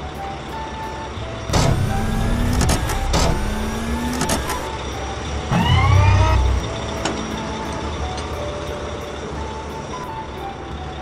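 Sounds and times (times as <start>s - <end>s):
cartoon engine revving: 1.5s - 4.7s, 5.5s - 6.7s
clunks: 1.5s - 4.7s, 5.5s - 8.3s
short rising whine: 5.5s - 6.8s.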